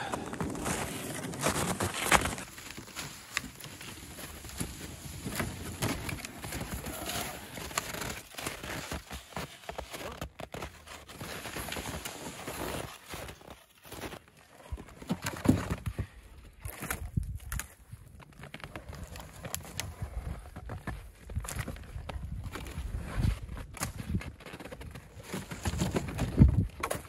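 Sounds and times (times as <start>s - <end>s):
footsteps crunching in snow: 0.0s - 14.6s.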